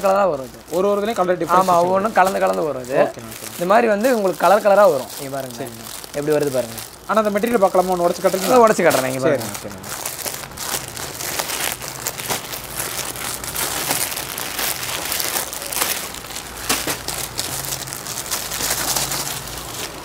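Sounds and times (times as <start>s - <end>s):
packaging crinkling and tearing: 0.0s - 20.0s.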